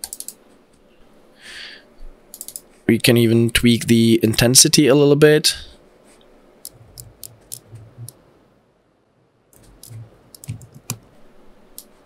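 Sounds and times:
mouse and keyboard clicks: 2.3s - 2.6s, 6.6s - 8.2s, 9.6s - 11.1s.

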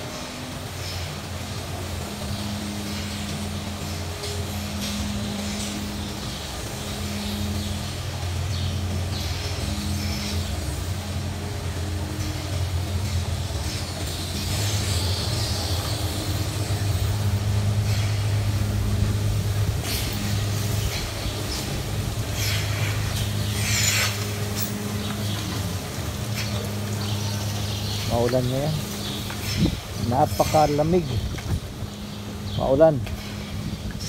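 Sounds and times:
low machine drone: 0.0s - 34.0s.

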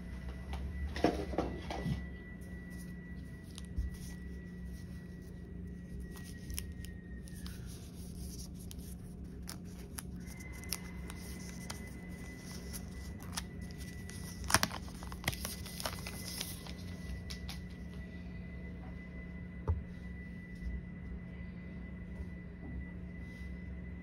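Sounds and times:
plastic film crinkling: 2.6s - 17.7s.

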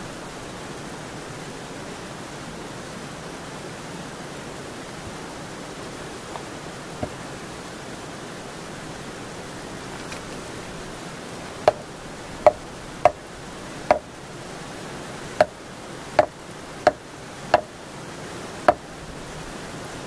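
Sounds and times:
sharp knocks on wooden post: 11.6s - 13.2s, 13.9s - 14.1s, 15.4s - 15.6s, 16.2s - 17.7s.

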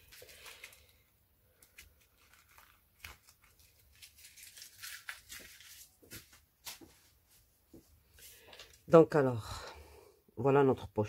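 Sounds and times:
plastic sheet crinkling: 0.0s - 7.2s.

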